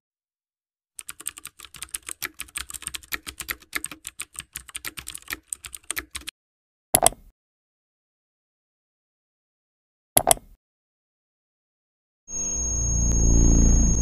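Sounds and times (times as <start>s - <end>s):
rapid typing on computer keyboard: 1.0s - 6.3s
loud mouse double click: 7.0s - 7.3s, 10.2s - 10.6s.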